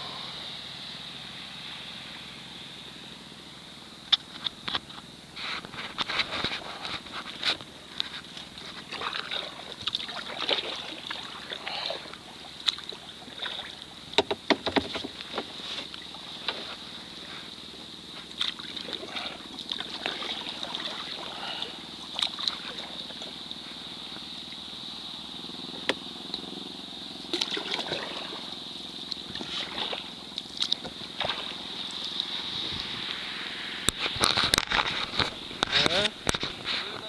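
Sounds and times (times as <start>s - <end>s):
water splashing around kayak: 4.0s - 37.0s
knocks: 14.2s - 15.2s.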